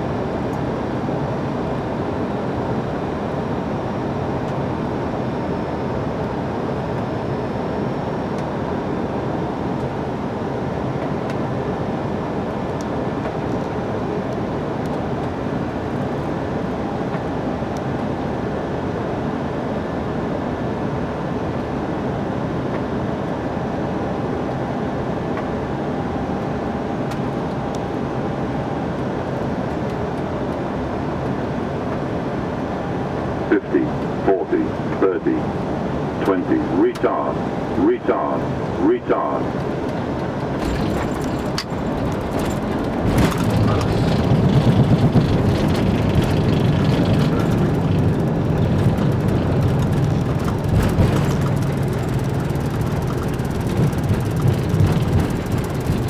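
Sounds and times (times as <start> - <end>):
aircraft cockpit rushing noise: 33.4 - 56.0.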